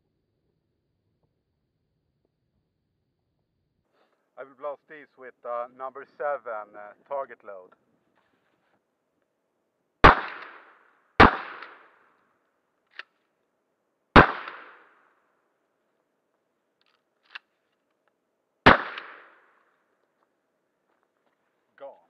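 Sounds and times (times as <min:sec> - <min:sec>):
shotgun blasts with echo: 0:10.0 - 0:12.0, 0:14.1 - 0:15.0, 0:18.6 - 0:19.5.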